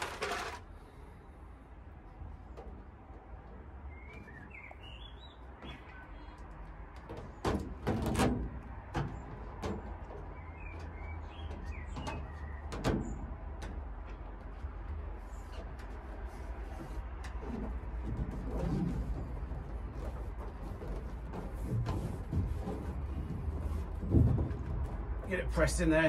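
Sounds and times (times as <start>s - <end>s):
foil insulation crackling: 0.0s - 0.6s
birds chirping: 3.8s - 6.6s, 10.2s - 13.2s.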